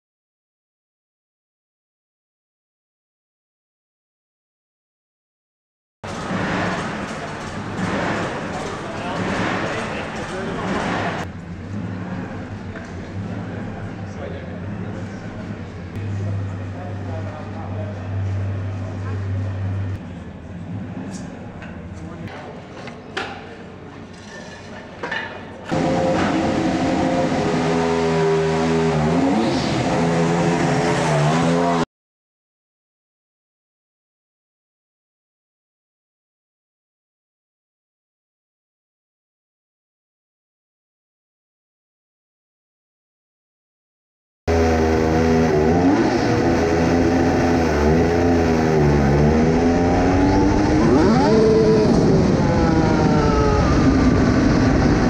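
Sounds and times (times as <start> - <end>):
racing car engine revving: 25.7 - 31.9, 44.5 - 55.0.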